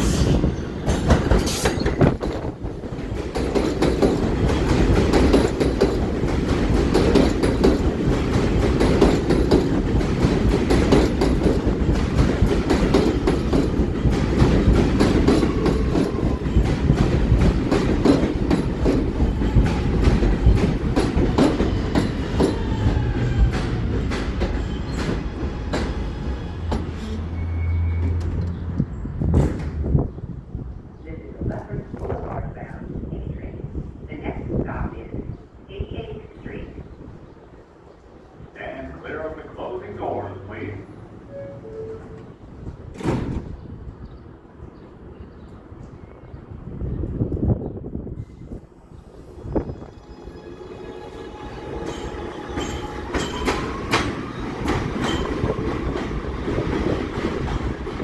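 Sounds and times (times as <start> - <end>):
subway train rumble: 0.0 - 58.0
wheels clattering over rail joints: 0.8 - 25.9.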